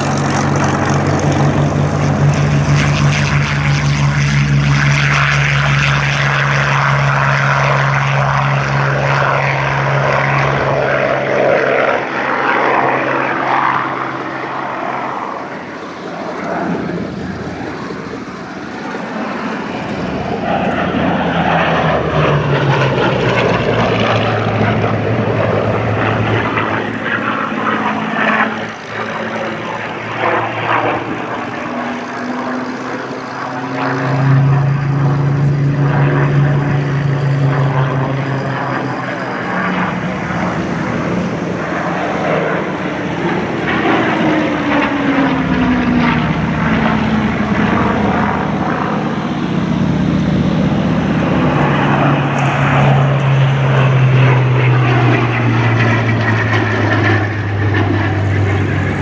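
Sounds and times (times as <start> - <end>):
propeller plane engine passing: 0.0 - 59.0.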